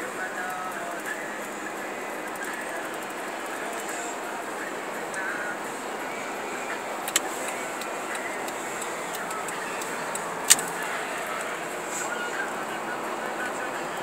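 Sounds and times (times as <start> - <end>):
road and tyre noise in car cabin: 0.0 - 14.0
sharp clicks: 7.0 - 11.6.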